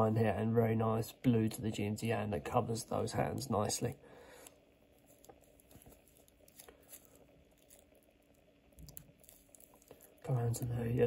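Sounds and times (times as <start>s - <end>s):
rustles and clicks handling watch: 3.2s - 11.0s.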